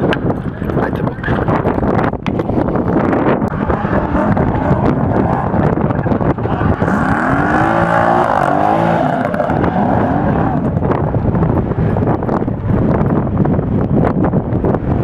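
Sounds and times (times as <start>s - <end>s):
wind noise on microphone: 0.0s - 15.0s
car engine revving: 3.5s - 12.0s.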